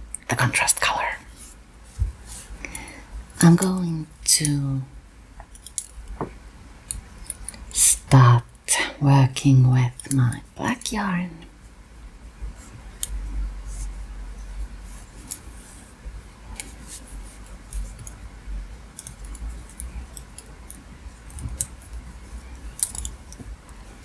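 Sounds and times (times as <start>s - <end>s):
faint low hum: 0.0s - 24.0s
knitting needles clicking: 5.4s - 6.0s, 9.8s - 10.4s, 18.9s - 22.0s, 22.7s - 23.5s.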